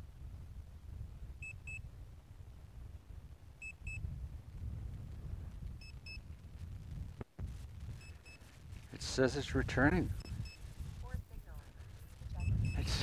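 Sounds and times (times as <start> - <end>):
wind rumbling on microphone: 0.0 - 13.0
electronic double beeps: 12.3 - 13.0.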